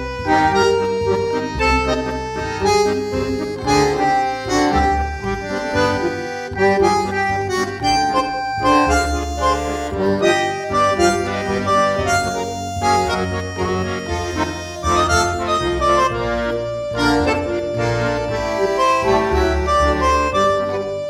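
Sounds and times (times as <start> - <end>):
reedy melody over beat: 0.0 - 21.0.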